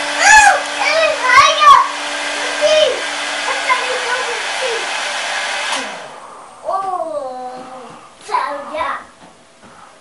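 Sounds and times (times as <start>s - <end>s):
hair dryer blowing: 0.0s - 6.6s
child squealing: 0.2s - 1.6s.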